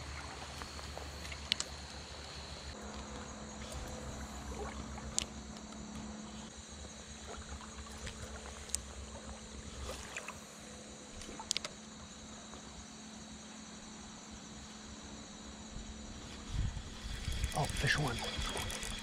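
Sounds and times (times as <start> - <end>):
wind rumble on microphone: 15.7 - 19.0
fishing reel clicks: 17.0 - 19.0.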